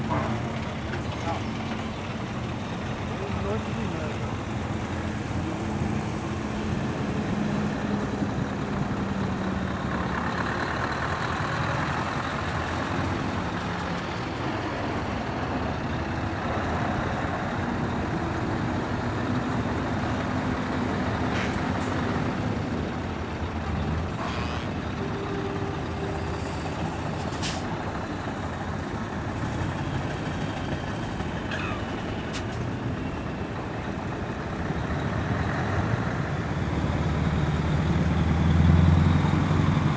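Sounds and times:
diesel truck engines rumbling: 0:00.0 - 0:39.9
air brake hisses: 0:27.2 - 0:27.7.

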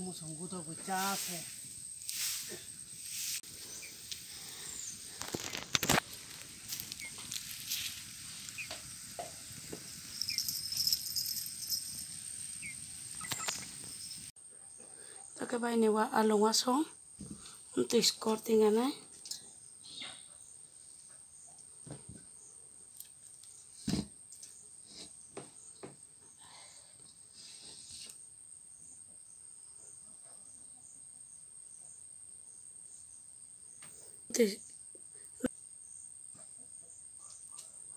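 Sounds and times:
insects chirping: 0:00.0 - 0:37.8
wood fire crackling: 0:00.9 - 0:14.3.

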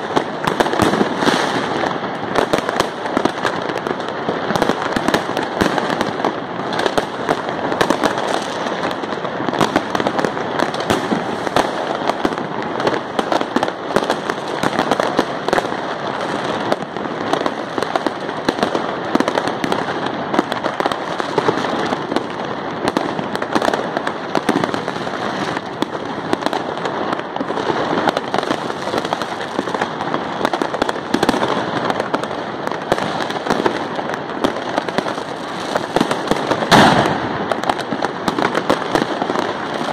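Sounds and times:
fireworks bangs and crackling: 0:00.0 - 0:39.9.

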